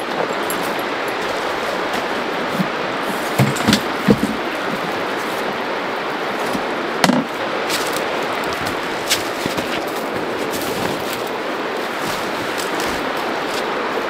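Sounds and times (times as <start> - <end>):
river water rushing over stones: 0.0 - 14.0
footsteps on pebbles: 7.7 - 14.0.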